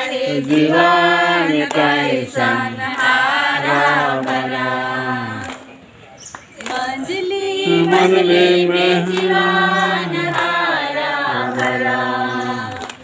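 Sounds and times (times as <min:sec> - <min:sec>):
group singing unaccompanied: 0:00.0 - 0:05.8, 0:06.6 - 0:13.0.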